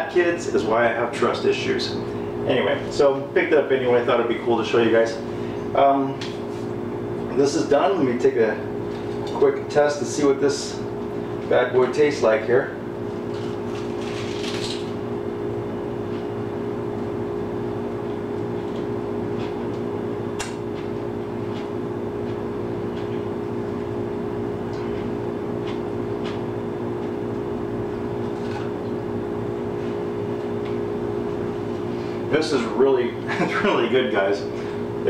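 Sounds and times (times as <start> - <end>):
steady machine hum: 0.0 - 35.0.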